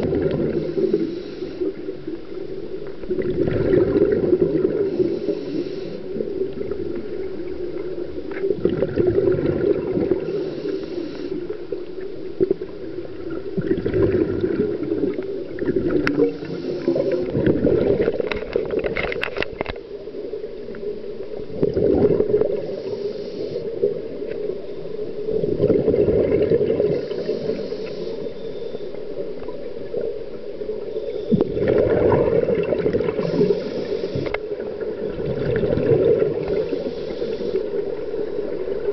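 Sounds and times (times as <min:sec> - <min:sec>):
exhaled bubbles gurgling: 0:00.0 - 0:28.3, 0:29.2 - 0:38.9
regulator inhale hiss: 0:00.4 - 0:02.2, 0:04.7 - 0:06.3, 0:10.1 - 0:11.8, 0:16.2 - 0:17.4, 0:22.5 - 0:24.2, 0:26.8 - 0:29.2, 0:30.8 - 0:31.6, 0:33.1 - 0:34.7, 0:36.4 - 0:38.6
steady hum: 0:30.3 - 0:34.8.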